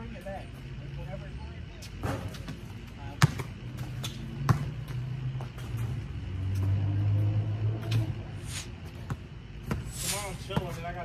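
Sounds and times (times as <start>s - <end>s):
basketball bouncing on concrete: 2.0s - 5.9s, 8.9s - 11.0s
low engine hum: 3.4s - 9.9s.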